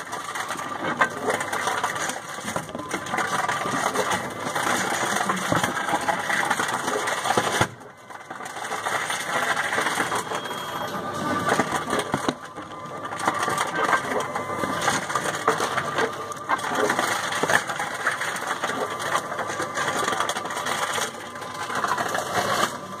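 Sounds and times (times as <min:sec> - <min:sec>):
vending machine motor noise: 0:00.0 - 0:23.0
plastic bottle clattering: 0:00.1 - 0:07.8, 0:11.4 - 0:21.1.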